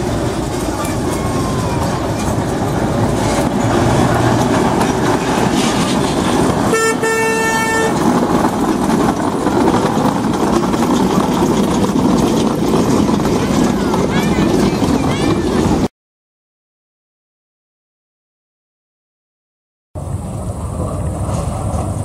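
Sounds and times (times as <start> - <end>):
mine train rumbling and clattering: 0.0 - 15.9, 20.0 - 22.0
locomotive horn: 6.6 - 8.2.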